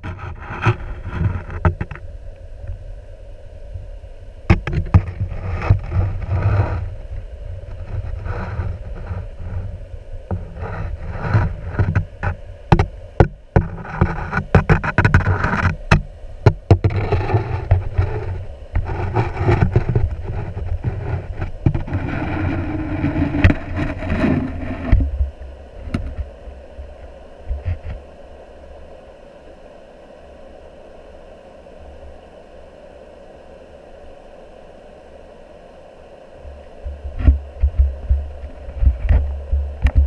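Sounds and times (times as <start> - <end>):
low underwater rumble: 36.4 - 40.0.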